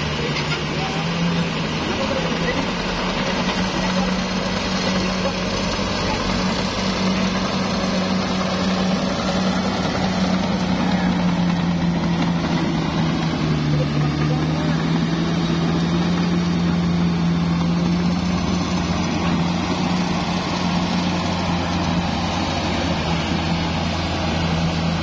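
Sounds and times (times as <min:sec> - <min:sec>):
bulldozer diesel engine droning: 0:00.0 - 0:25.0.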